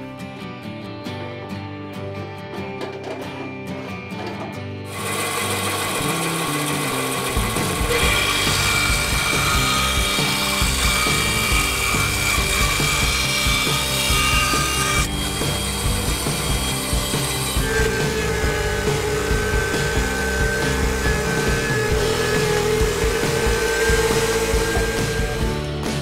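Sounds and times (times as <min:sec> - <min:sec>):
bandsaw cutting wood: 0:04.9 - 0:26.0.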